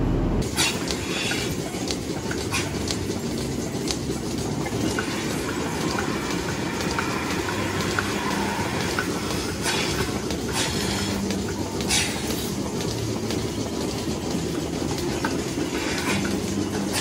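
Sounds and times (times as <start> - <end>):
milking machinery clatter and hum: 0.4 - 17.0.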